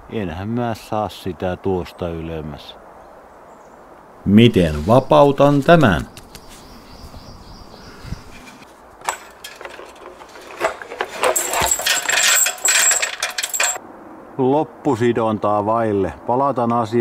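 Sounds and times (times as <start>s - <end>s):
steel chain clinking and rattling: 8.4s - 13.8s.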